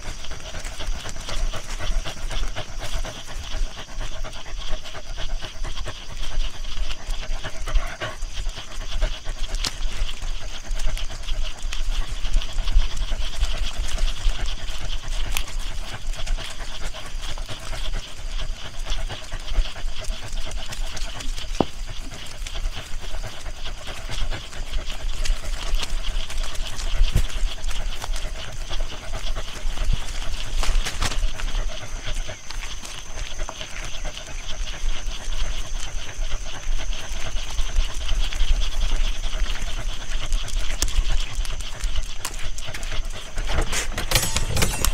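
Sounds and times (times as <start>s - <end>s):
dog panting: 0.0s - 44.9s.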